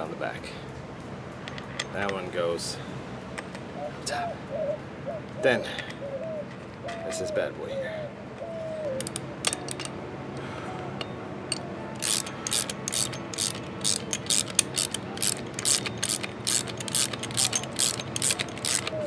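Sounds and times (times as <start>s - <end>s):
socket ratchet clicking: 9.0s - 10.0s, 11.0s - 19.0s.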